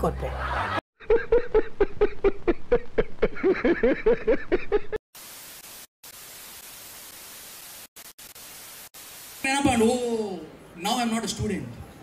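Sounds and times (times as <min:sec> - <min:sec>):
man laughing hard: 0:00.5 - 0:05.0
tv static hiss: 0:05.2 - 0:11.4.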